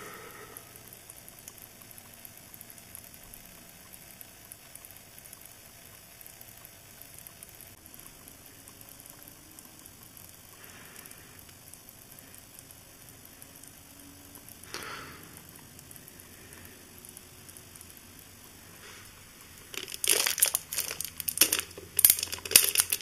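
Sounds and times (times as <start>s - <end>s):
oil trickling into pan: 18.8s - 23.0s.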